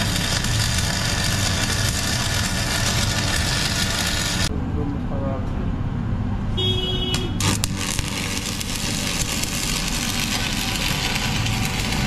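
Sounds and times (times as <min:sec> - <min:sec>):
welding arc crackling: 0:00.0 - 0:04.5, 0:07.1 - 0:12.0.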